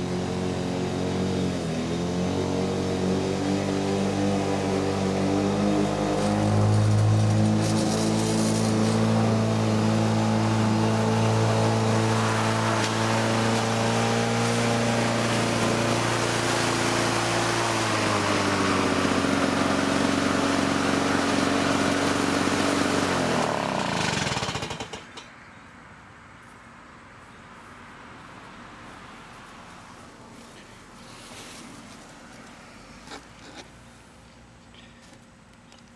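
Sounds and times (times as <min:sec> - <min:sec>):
engine winding down: 0:00.0 - 0:25.2
lawn mower engine cutting grass: 0:00.0 - 0:25.3, 0:28.2 - 0:33.9.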